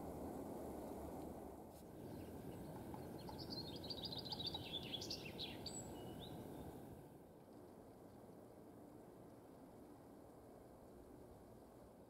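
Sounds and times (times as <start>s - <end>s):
songbird trilling: 3.0s - 6.3s.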